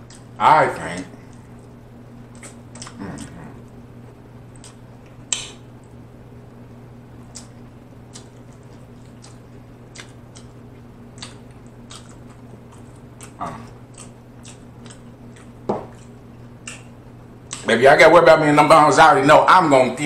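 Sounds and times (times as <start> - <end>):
lip-smacks and mouth clicks: 0.0 - 0.3, 2.3 - 3.3, 4.5 - 6.0, 7.3 - 16.9, 17.5 - 17.7
wet chewing: 0.0 - 0.4, 1.2 - 3.8, 4.5 - 6.0, 7.2 - 17.7
steady low hum: 0.0 - 20.0.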